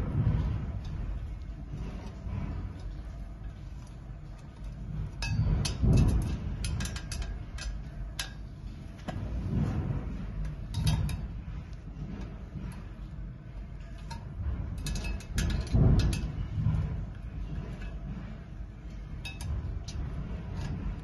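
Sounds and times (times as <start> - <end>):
tools clinking on metal frame: 19.0 - 21.0.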